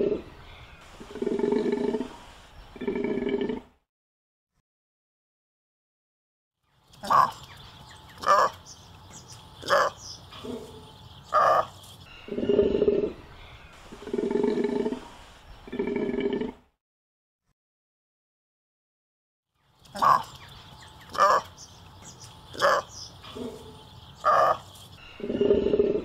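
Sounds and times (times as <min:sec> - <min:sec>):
animal calling: 0:07.0 - 0:13.3, 0:19.9 - 0:26.0.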